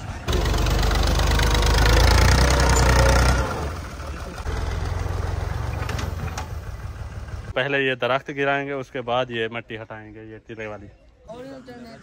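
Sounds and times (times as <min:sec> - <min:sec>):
tractor diesel engine: 0:00.0 - 0:07.7.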